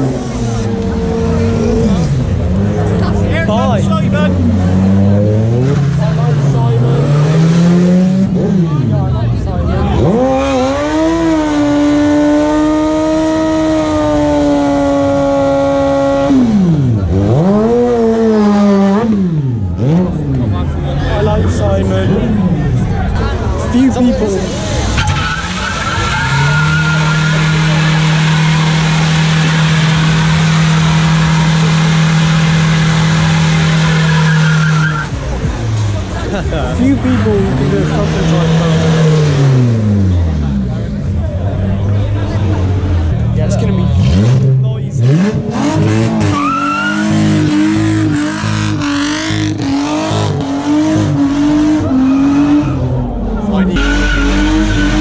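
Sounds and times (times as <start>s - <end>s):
car engine revving: 0.0s - 55.0s
tyres spinning on tarmac: 24.2s - 38.4s.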